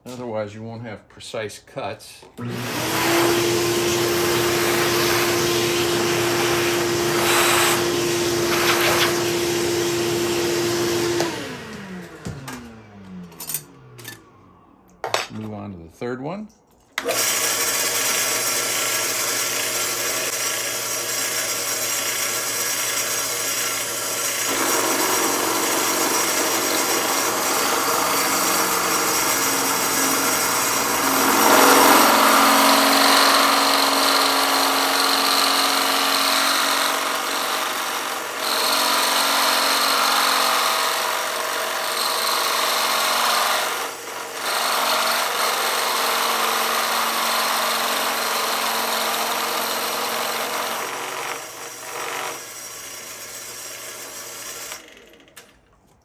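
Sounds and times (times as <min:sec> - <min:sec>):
drill press cutting steel: 0:02.4 - 0:09.5, 0:17.0 - 0:55.4.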